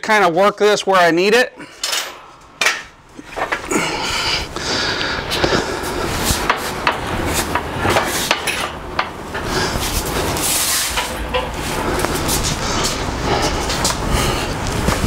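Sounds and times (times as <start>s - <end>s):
casters rolling rumble: 3.2s - 15.0s.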